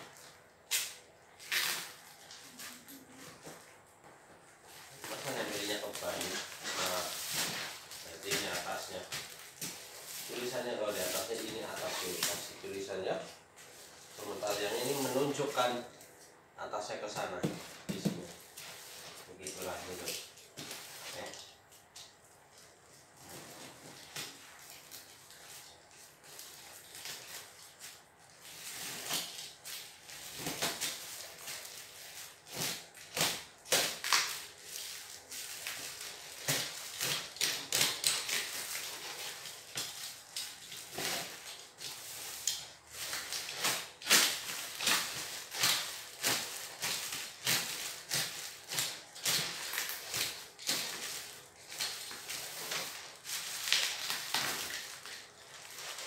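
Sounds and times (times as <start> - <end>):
plastic wrapping crackling: 0.0 - 3.6, 4.8 - 13.3, 13.9 - 16.0, 17.1 - 22.0, 23.2 - 56.0
packing tape ripping: 0.6 - 3.1, 5.0 - 12.8, 26.2 - 56.0.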